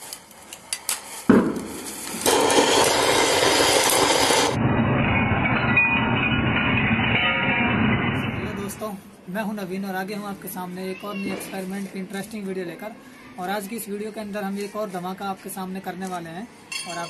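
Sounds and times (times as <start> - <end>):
sharp crack: 0.0 - 8.7
firework crackles: 0.0 - 8.9.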